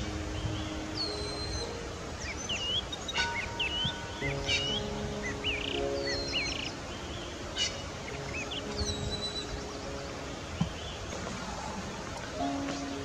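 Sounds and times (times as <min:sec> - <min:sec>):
outdoor background noise: 0:00.0 - 0:13.0
small birds chirping: 0:00.0 - 0:13.0
soft background music: 0:00.0 - 0:13.0.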